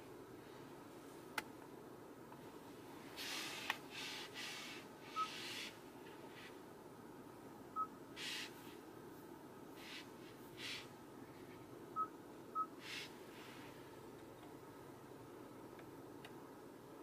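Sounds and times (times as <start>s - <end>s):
soft breath-like hisses: 3.1s - 6.6s, 9.8s - 11.0s, 12.8s - 13.9s.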